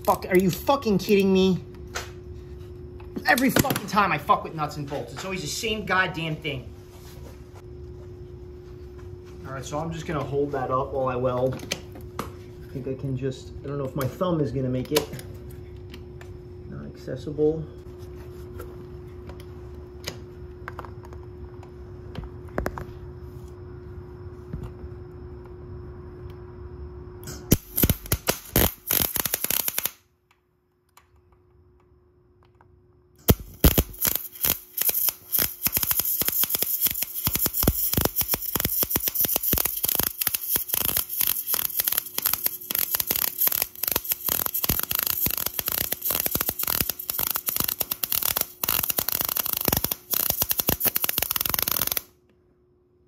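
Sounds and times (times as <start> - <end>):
welding arc crackling: 0.0 - 1.5, 27.5 - 30.0, 33.2 - 52.1.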